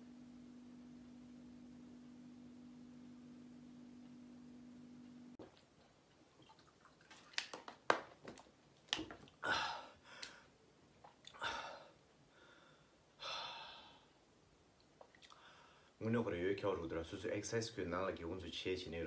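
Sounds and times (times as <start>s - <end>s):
man sighing out: 9.4s - 10.0s.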